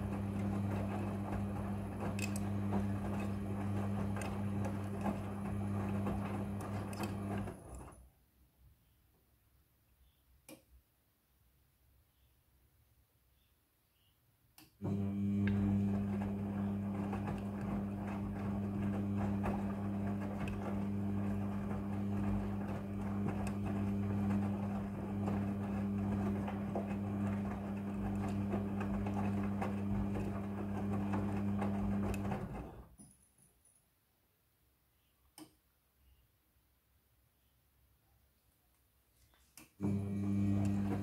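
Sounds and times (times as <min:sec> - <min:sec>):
washing machine motor hum: 0:00.0 - 0:08.1, 0:14.8 - 0:33.0, 0:39.8 - 0:41.0
washing machine motor click: 0:00.1 - 0:07.8.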